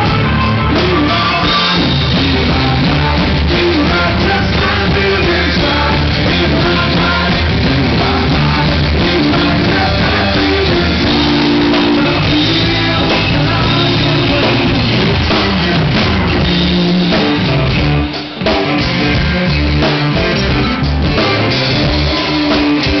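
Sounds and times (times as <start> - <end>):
drum kit: 0.0 - 23.0
electric guitar: 0.0 - 23.0
man singing: 0.5 - 23.0.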